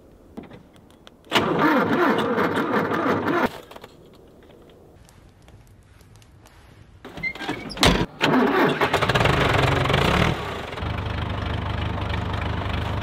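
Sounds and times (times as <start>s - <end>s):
tractor engine starting and idling: 1.3s - 3.7s, 7.1s - 13.0s.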